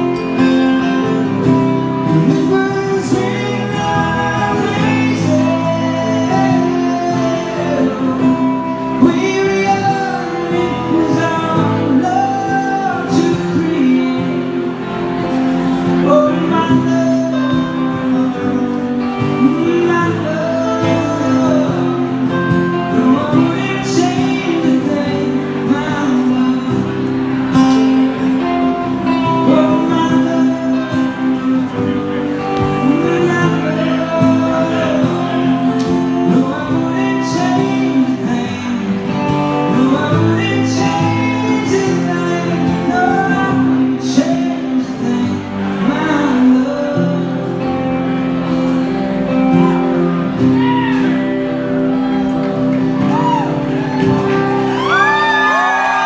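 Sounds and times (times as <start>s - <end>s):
man singing: 0.0s - 52.2s
electric guitar: 0.0s - 56.0s
strummed acoustic guitar: 0.0s - 56.0s.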